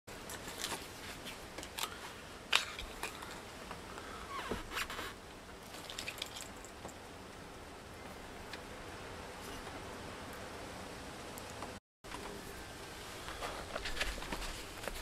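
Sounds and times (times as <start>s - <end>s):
clothing rustle: 13.2s - 15.0s.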